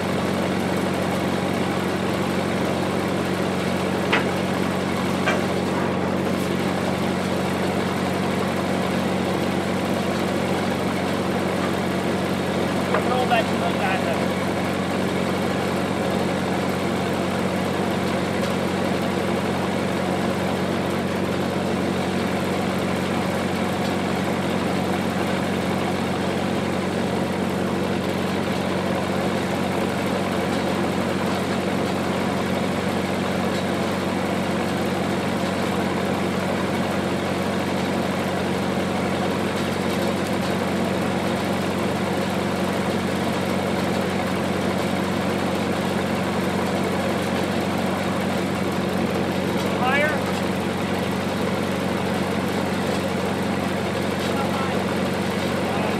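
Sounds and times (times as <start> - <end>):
generator engine humming: 0.0 - 55.9.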